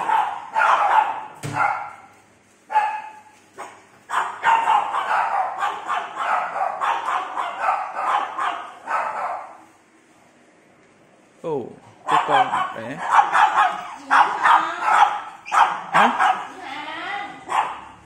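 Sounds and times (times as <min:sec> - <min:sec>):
small dog barking: 0:00.0 - 0:02.1, 0:02.7 - 0:09.6, 0:12.0 - 0:16.6, 0:17.4 - 0:18.0.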